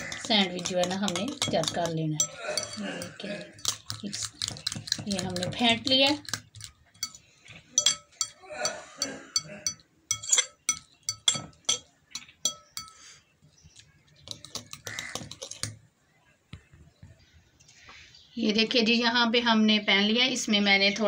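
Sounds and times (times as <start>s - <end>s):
fork clinking against glass bowl: 0.0s - 5.5s, 6.2s - 13.1s.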